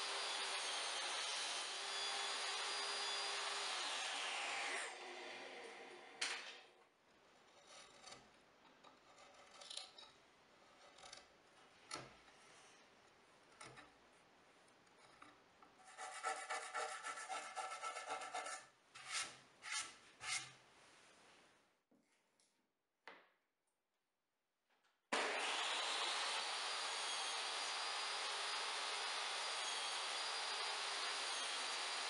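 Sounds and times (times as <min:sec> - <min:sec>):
chisel scraping wood: 0:07.4 - 0:12.5, 0:13.5 - 0:14.0, 0:14.7 - 0:20.6.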